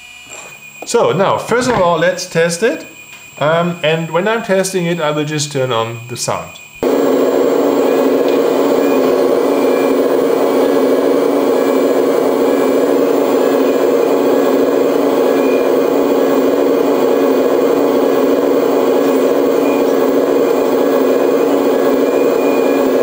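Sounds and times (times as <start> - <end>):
model excavator engine sound: 6.8 - 23.0.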